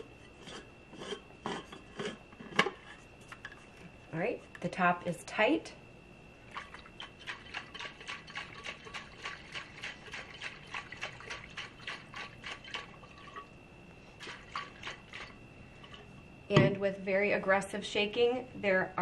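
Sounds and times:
water sloshing in shaken bottle: 6.5s - 13.5s.

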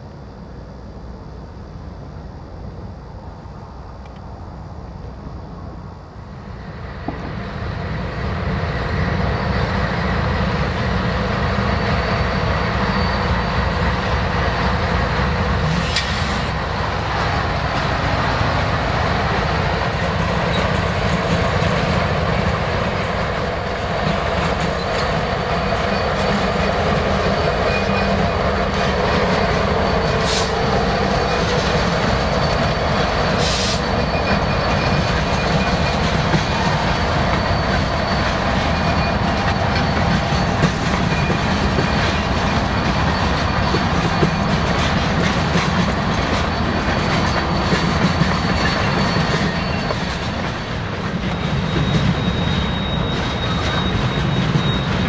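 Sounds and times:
diesel locomotive engines passing: 0.0s - 55.0s.

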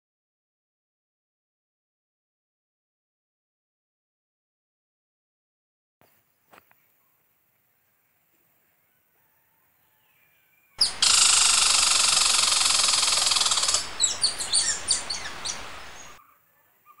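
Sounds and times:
squirrel rattling trill: 10.8s - 16.2s
squirrel sharp chirps: 10.8s - 16.2s.

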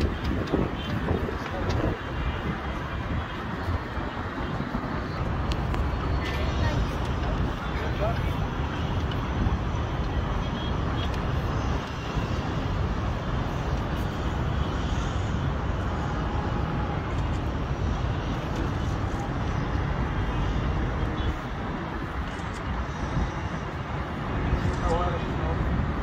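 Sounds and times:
distant city traffic hum: 0.0s - 26.0s
wind buffeting microphone: 0.0s - 26.0s.

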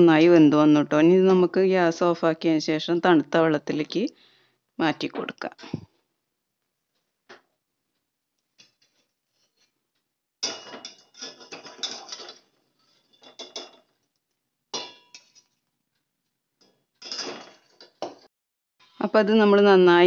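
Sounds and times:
strainer scraping metal pot: 10.8s - 13.7s.

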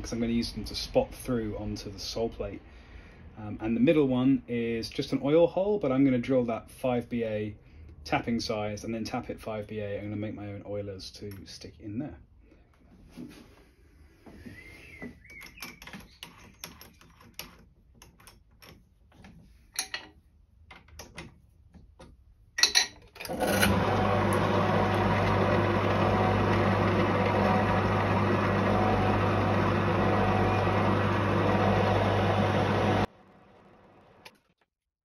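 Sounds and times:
clicks and knocks of handling tools: 15.3s - 23.4s
pillar drill running: 23.2s - 34.2s.

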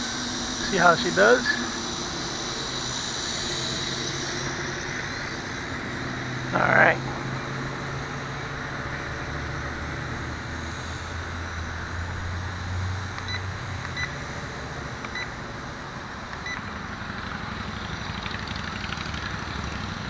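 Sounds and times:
drone propellers humming: 0.0s - 20.0s.

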